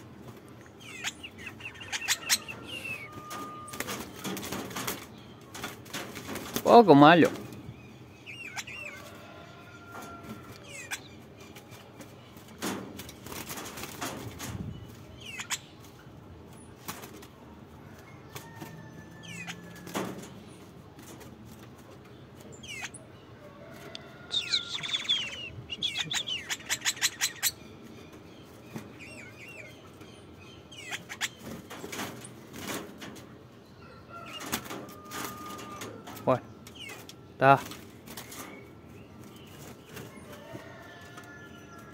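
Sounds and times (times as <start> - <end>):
bird wings flapping: 3.1 - 6.7, 12.5 - 14.6, 31.4 - 33.2.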